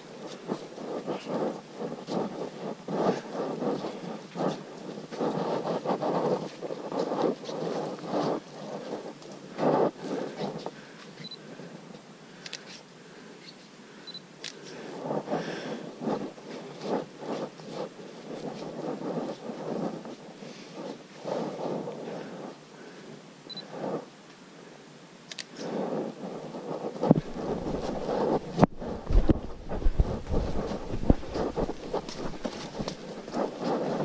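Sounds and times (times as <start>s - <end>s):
rushing wind: 0.0s - 11.9s, 14.4s - 24.1s, 25.3s - 34.0s
camera handling noise: 25.3s - 25.6s
camera rustling: 25.3s - 34.0s
footsteps on dirt trail: 26.8s - 34.0s.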